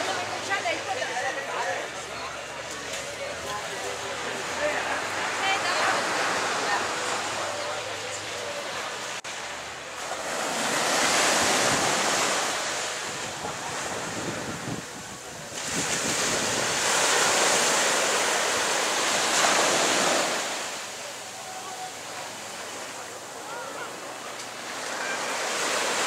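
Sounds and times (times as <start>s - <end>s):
surf breaking on sandy beach: 10.0s - 21.9s
wind on microphone: 13.0s - 17.4s.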